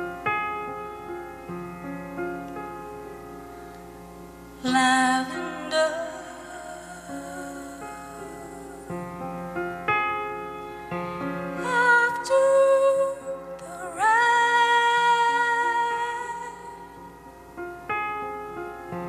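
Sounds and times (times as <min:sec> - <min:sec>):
soft piano chords: 0:00.0 - 0:19.0
woman singing: 0:04.6 - 0:09.0, 0:11.6 - 0:17.0.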